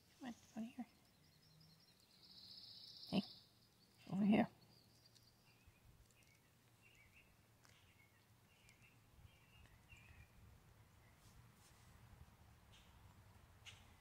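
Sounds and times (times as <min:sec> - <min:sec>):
faint bird chirps: 0:00.2 - 0:11.4.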